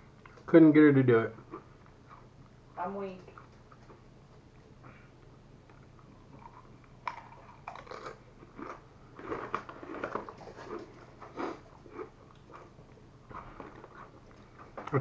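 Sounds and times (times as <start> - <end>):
tortilla chip crunching: 6.3 - 14.4.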